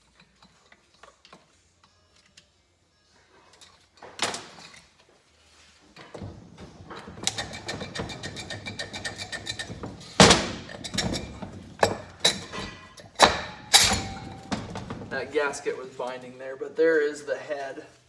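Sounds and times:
metal scraping and clinking: 0:05.6 - 0:16.4
sharp metal knocks: 0:06.9 - 0:15.1.

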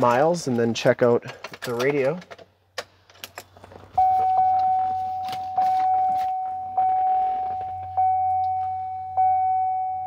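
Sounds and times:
dashboard warning chime dinging: 0:04.0 - 0:10.0.

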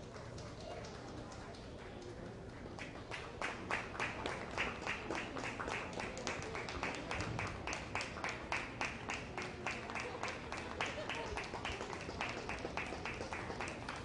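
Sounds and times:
spectators clapping in rhythm: 0:02.7 - 0:14.0.

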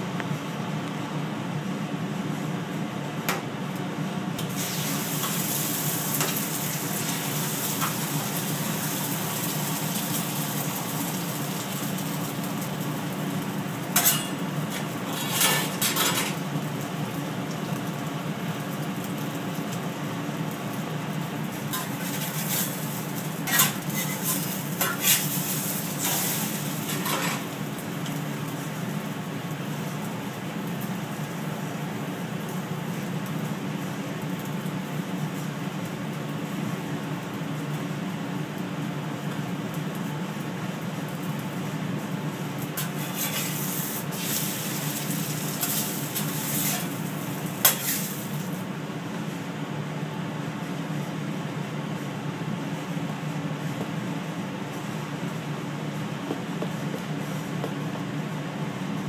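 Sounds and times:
eggs sizzling on griddle: 0:04.4 - 0:49.3.

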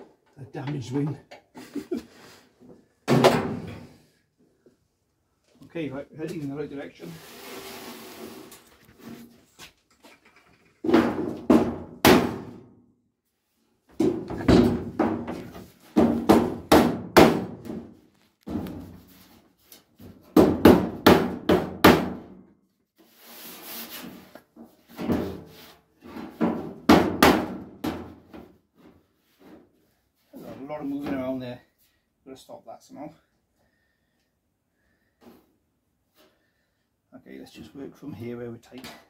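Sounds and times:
brief scraping hiss: 0:07.2 - 0:09.2.

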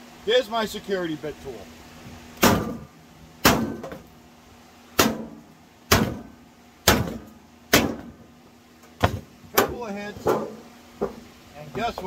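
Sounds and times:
hammer striking sheet metal: 0:05.0 - 0:06.3.

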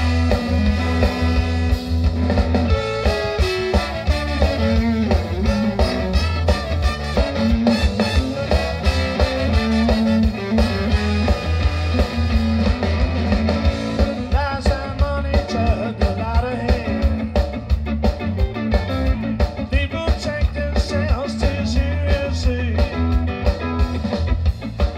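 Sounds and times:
saxophone melodic lines: 0:00.0 - 0:14.2
ska band playing: 0:00.0 - 0:24.9.

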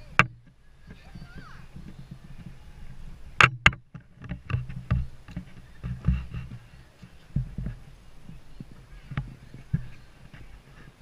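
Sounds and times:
knocks and thumps: 0:00.0 - 0:02.6, 0:03.4 - 0:06.7, 0:07.3 - 0:10.5.

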